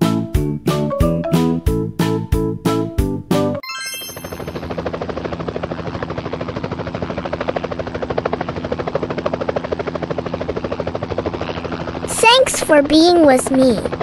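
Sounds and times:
sparkling magic chime: 3.6s - 4.7s
helicopter rotor chopping: 4.1s - 14.0s.

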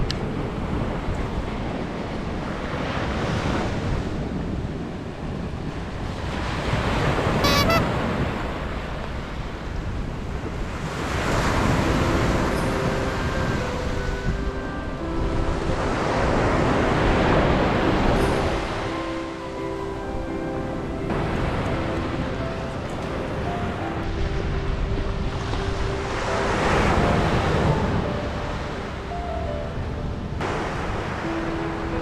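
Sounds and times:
wind buffeting microphone: 0.0s - 32.0s
surf breaking on a beach: 30.4s - 32.0s.

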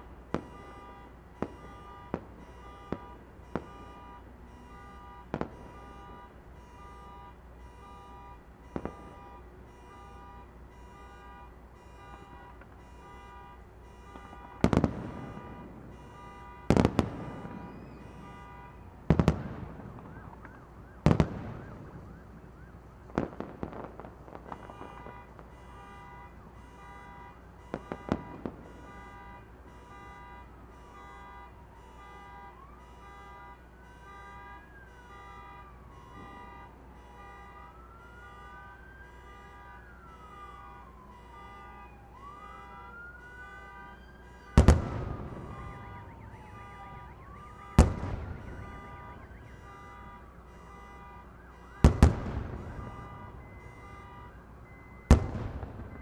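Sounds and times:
fireworks booming: 0.2s - 6.3s, 8.0s - 9.4s, 14.0s - 22.1s, 23.0s - 29.3s, 44.5s - 50.2s, 51.8s - 54.2s, 55.0s - 56.0s
electronic alarm beeping: 52.6s - 56.0s.

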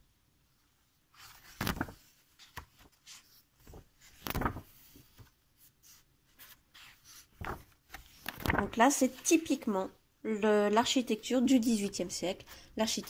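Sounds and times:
book pages turning: 1.2s - 9.3s.

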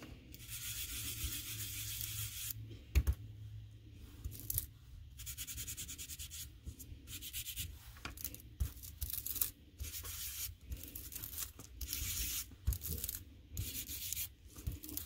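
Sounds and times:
scratchy rubbing on cardstock: 0.4s - 2.6s, 5.2s - 8.9s, 9.8s - 15.0s.

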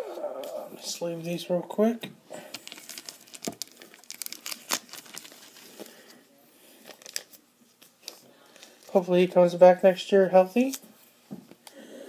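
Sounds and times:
packaging crinkling by hand: 2.4s - 9.1s
sharp packaging snaps: 2.5s - 5.5s.

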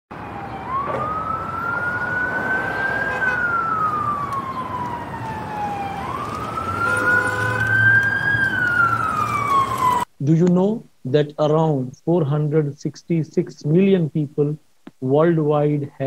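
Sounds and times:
emergency vehicle siren wailing: 0.1s - 10.1s.

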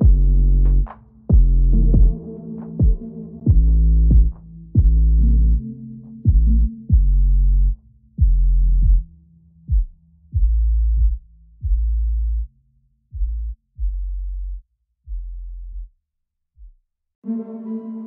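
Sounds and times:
electronic dance music bass hits: 0.0s - 0.4s, 1.3s - 5.2s.

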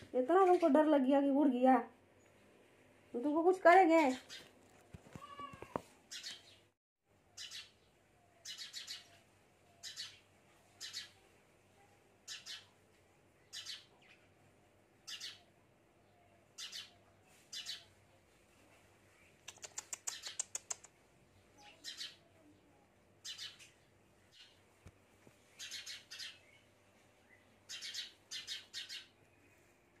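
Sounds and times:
sparrow chirping: 6.1s - 6.7s, 7.3s - 11.2s, 12.2s - 12.8s, 13.4s - 14.3s, 15.0s - 15.5s, 16.2s - 18.0s, 19.2s - 20.8s, 21.4s - 22.5s, 23.2s - 24.6s, 25.4s - 26.6s, 27.3s - 29.2s.

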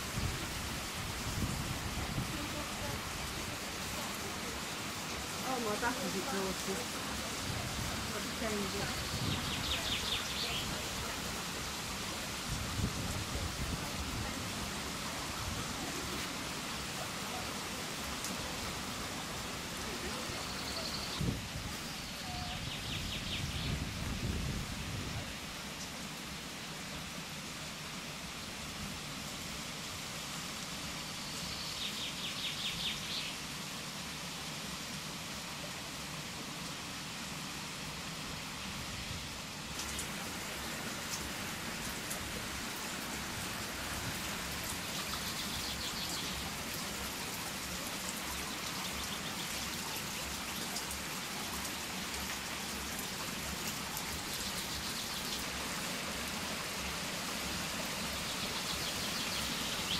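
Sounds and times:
water pouring and splashing: 39.5s - 59.9s.

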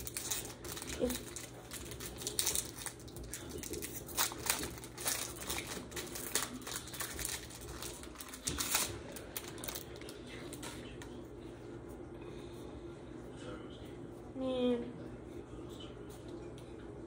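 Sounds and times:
trading cards clicking and crinkling: 0.0s - 11.2s.

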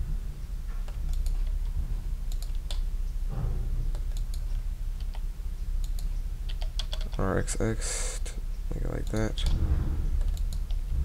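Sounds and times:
steady low hum: 0.0s - 11.0s
computer keyboard clicks: 0.8s - 2.9s, 3.9s - 4.4s, 5.0s - 5.2s, 5.8s - 7.2s, 8.9s - 9.6s, 10.2s - 10.8s
mouse clicks: 5.8s - 7.2s, 10.2s - 10.8s.

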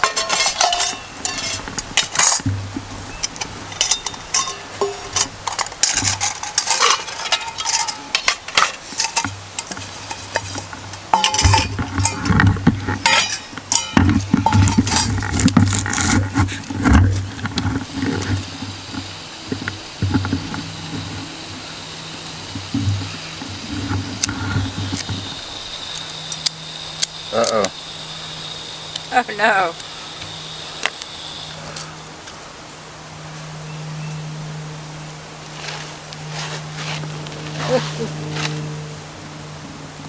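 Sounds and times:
cookware clinking and scraping: 0.0s - 2.4s, 3.8s - 15.4s
steady hiss: 0.0s - 40.0s.

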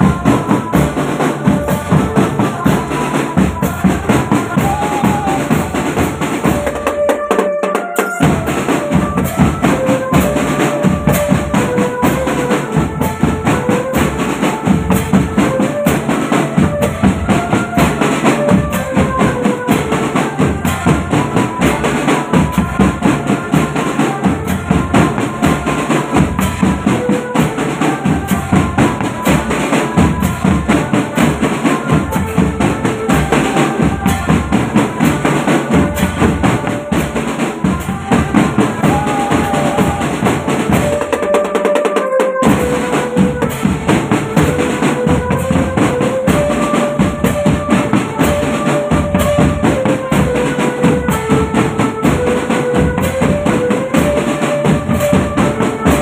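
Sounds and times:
bass drums: 0.0s - 6.8s, 31.9s - 41.1s, 42.4s - 56.0s
snare drums: 0.0s - 56.0s
cymbals clashing: 28.4s - 50.6s.

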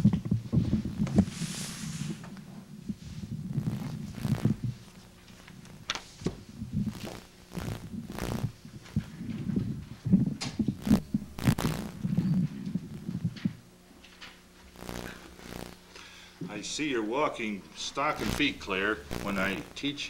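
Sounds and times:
something sliding hiss: 1.2s - 2.2s.

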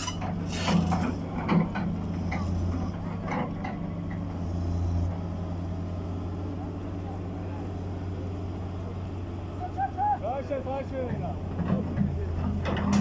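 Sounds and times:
diesel engine droning: 0.0s - 13.0s
short knocks and clatters: 11.5s - 13.0s.

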